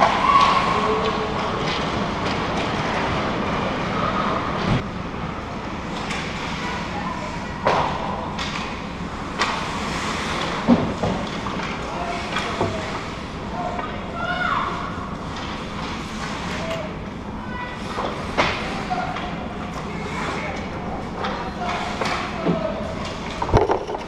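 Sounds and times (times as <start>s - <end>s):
hockey sticks hitting puck: 0.0s - 3.2s, 7.6s - 13.0s, 17.9s - 20.4s
crowd and player voices: 0.0s - 24.0s.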